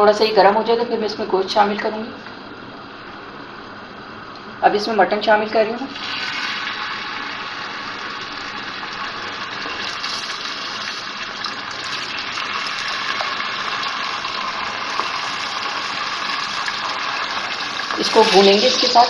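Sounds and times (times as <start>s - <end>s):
meat sizzling in hot oil: 6.0s - 19.0s.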